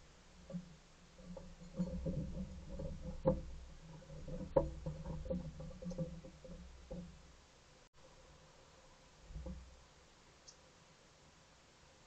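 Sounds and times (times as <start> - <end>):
squirrel scratching and knocking: 0.0 - 7.4.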